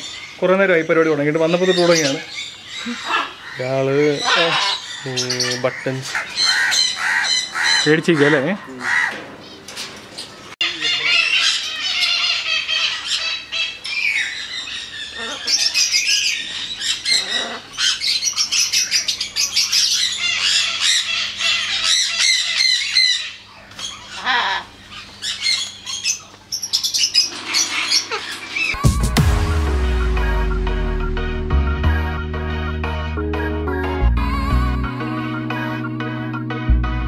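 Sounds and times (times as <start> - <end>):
parrots squawking and chattering: 0.0 - 9.6, 10.2 - 28.8.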